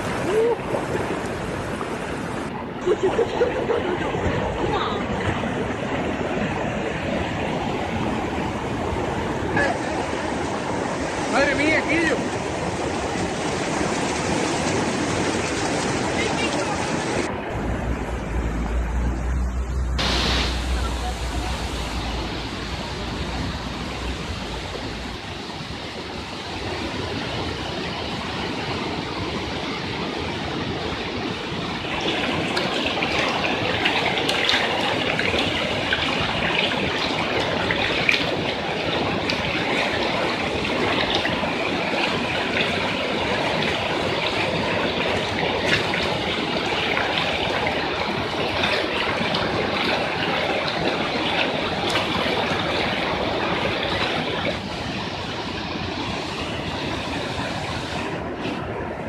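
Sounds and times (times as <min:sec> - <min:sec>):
rushing floodwater: 0:00.0 - 0:59.0.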